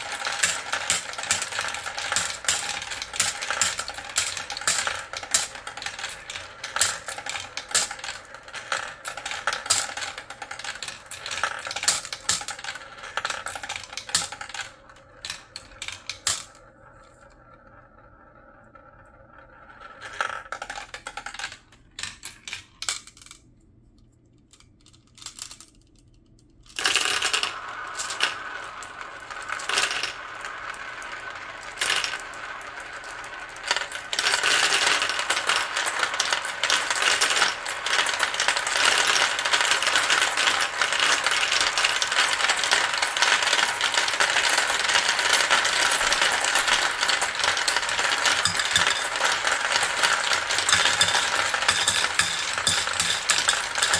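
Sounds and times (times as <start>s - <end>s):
marbles poured into bowl: 0.0s - 14.7s, 26.8s - 53.9s
marbles rattling through marble run: 0.0s - 23.5s, 24.5s - 53.9s.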